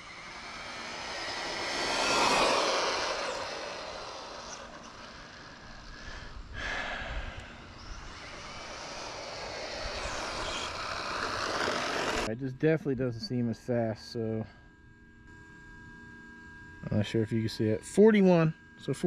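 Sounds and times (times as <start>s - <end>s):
rc truck motor and gear whine: 0.0s - 12.3s.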